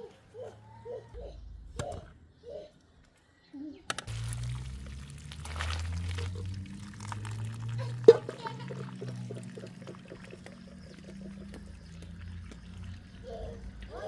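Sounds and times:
liquid glugging while poured: 4.1 - 13.8.

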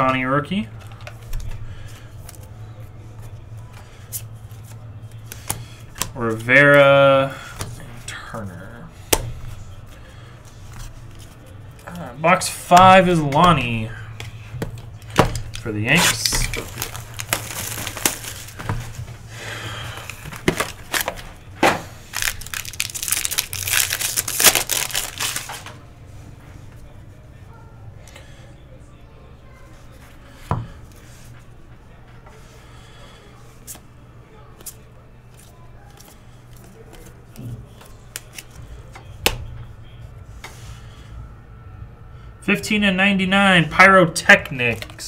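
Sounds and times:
low steady hum: 0.0 - 45.0
foil pack crinkling and tearing: 15.4 - 18.8, 19.8 - 21.4, 22.0 - 25.7
plastic wrapper crinkling: 15.4 - 18.9, 20.0 - 21.4, 22.0 - 25.7
plastic cards clicking: 20.0 - 21.3, 22.1 - 25.7.

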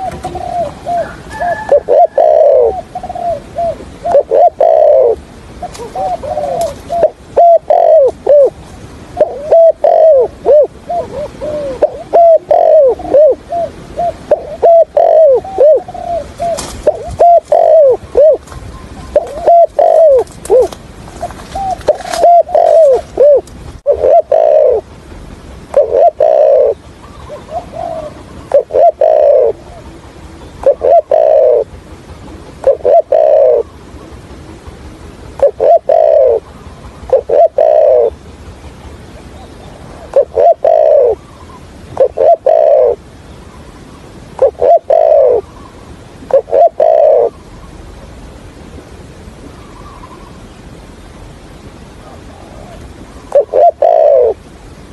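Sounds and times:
dove cooing: 0.0 - 25.0, 25.6 - 50.5, 51.9 - 54.6.

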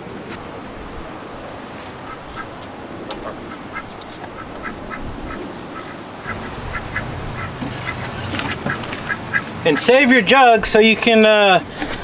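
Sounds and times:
ducks quacking: 2.0 - 2.5, 3.1 - 10.6
low steady hum: 2.9 - 12.0.

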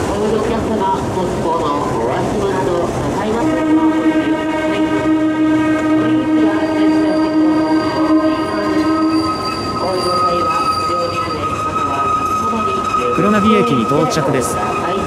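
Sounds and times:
train wheels rumbling: 0.0 - 15.0
metallic wheel squeal: 5.9 - 15.0.

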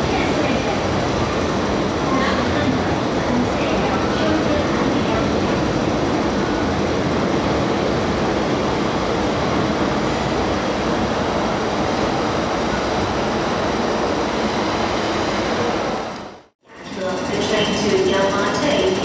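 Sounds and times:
train passing rush and rumble: 0.0 - 19.0.

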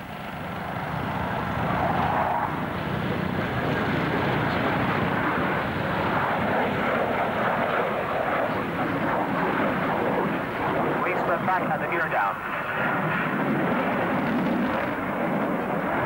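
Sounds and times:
fighter jet engines roaring: 0.0 - 16.0.

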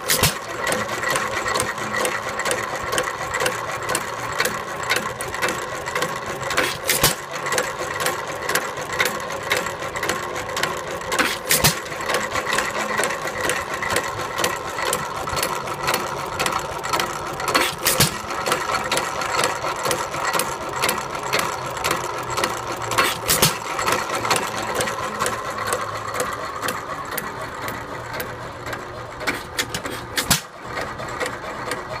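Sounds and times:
engine sharp pop: 0.0 - 0.5, 6.6 - 7.2, 11.2 - 11.9, 17.6 - 18.2, 23.0 - 23.6, 29.3 - 30.5
stationary engine clattering: 0.0 - 32.0.

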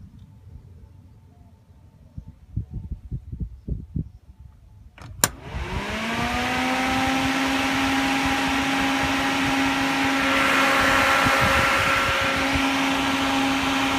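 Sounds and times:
cooling fan motor hum: 5.0 - 13.9
rush of air: 8.1 - 13.9.

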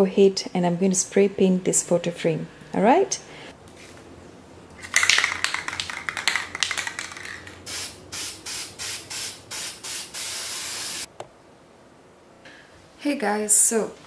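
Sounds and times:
spray can rattling: 4.8 - 11.1
spray paint bursts: 6.6 - 11.1.

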